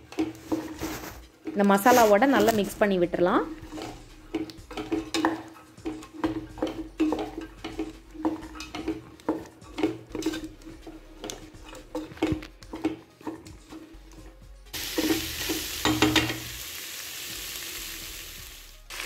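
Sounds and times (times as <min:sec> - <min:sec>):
spatula scraping steel pot: 0:00.0 - 0:14.4.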